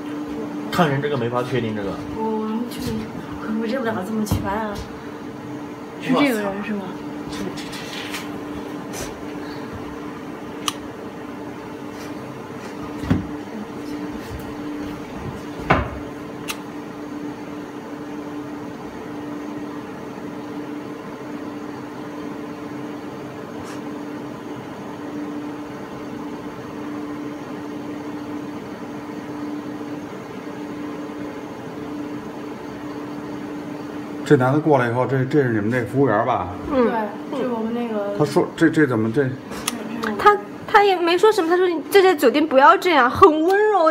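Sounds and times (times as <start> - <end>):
equipment hum: 0.0 - 43.9.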